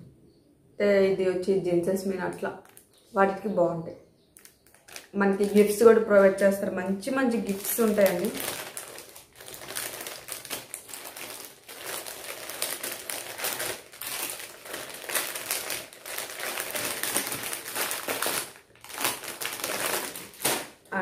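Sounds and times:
packaging crinkling: 0:02.6 - 0:03.1, 0:04.4 - 0:06.4, 0:07.4 - 0:21.0.

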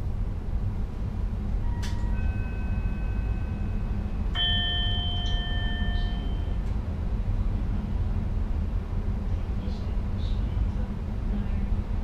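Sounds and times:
train rumble: 0:00.0 - 0:12.0
bell-like chime: 0:01.6 - 0:06.6
chime click: 0:04.4 - 0:06.6.

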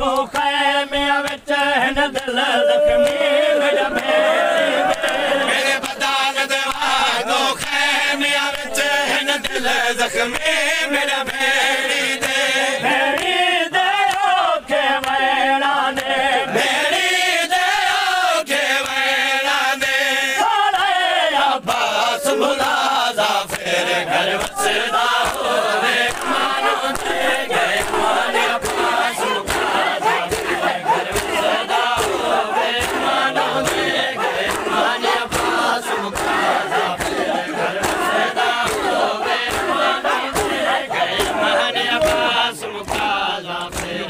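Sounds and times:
man leading a chant: 0:00.0 - 0:11.8, 0:40.0 - 0:44.0
crowd of men chanting: 0:00.0 - 0:44.0
chest-beating slaps: 0:24.4 - 0:44.0.

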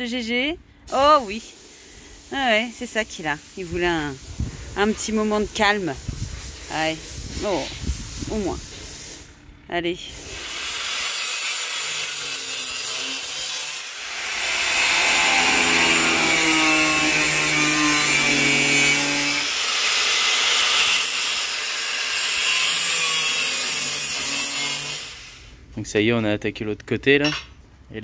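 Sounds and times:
angle grinder cutting steel: 0:10.2 - 0:25.5.

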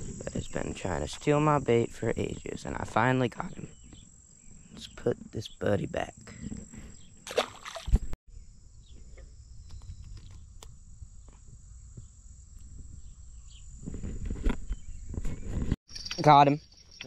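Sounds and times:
wind rumble on microphone: 0:00.0 - 0:00.8, 0:08.8 - 0:15.8
high-pitched insect drone: 0:00.0 - 0:15.0.

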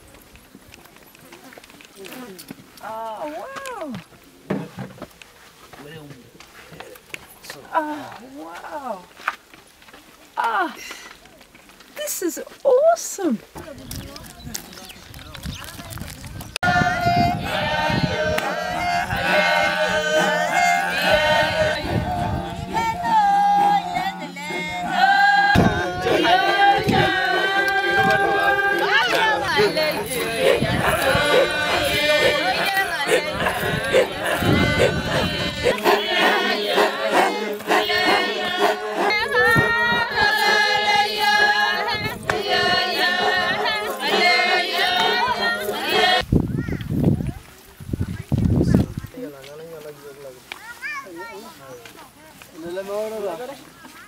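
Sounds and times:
low vocal drone: 0:16.6 - 0:45.7
group chanting a song: 0:16.6 - 0:46.2.

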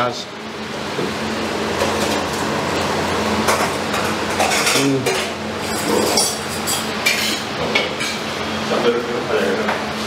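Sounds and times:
steel plates and bowls clattering: 0:04.4 - 0:07.4.

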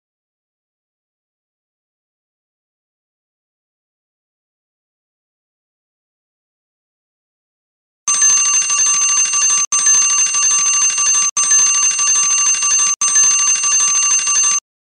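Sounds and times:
electronic timer alarm ringing: 0:08.1 - 0:14.6.

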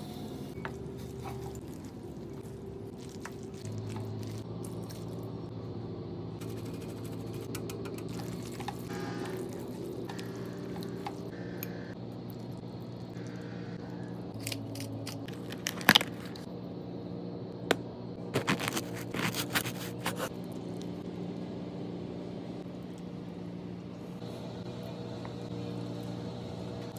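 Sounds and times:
low hum: 0:00.0 - 0:26.9
bread crust crackling: 0:00.8 - 0:05.4, 0:06.4 - 0:11.2, 0:14.4 - 0:16.5, 0:18.2 - 0:21.0
bread knife sawing crusty bread: 0:18.4 - 0:20.3.

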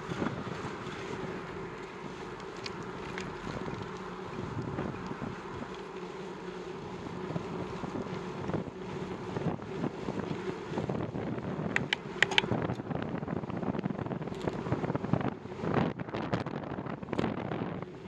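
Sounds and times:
wind buffeting microphone: 0:00.0 - 0:18.0
faint ticks: 0:11.7 - 0:12.8.

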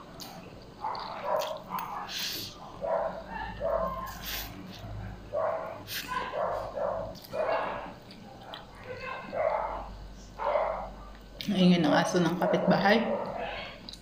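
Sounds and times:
dog barking: 0:00.8 - 0:04.3, 0:05.0 - 0:07.9, 0:09.0 - 0:11.0, 0:12.2 - 0:13.8.

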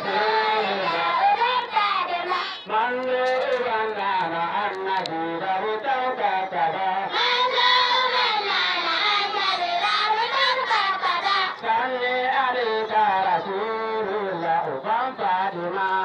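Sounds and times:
girls singing praise song: 0:00.0 - 0:02.8, 0:07.1 - 0:11.8.

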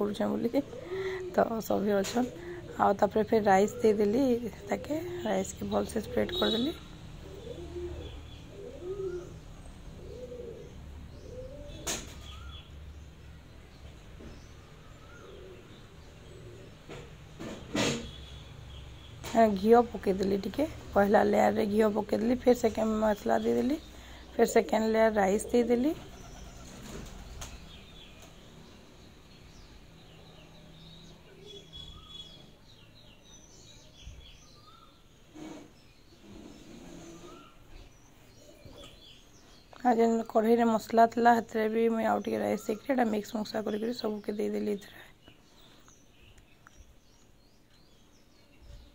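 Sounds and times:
birds chirping faintly: 0:00.0 - 0:48.9
faint bird chirps: 0:03.8 - 0:16.8
pigeon cooing: 0:07.2 - 0:12.5.

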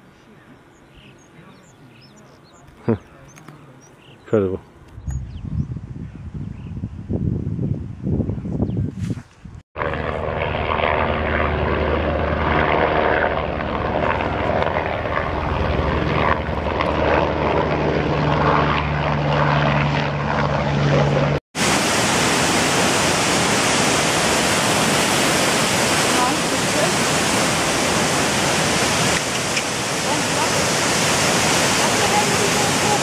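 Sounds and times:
small aircraft engine droning: 0:09.8 - 0:33.0
waterfall rushing: 0:21.6 - 0:33.0.

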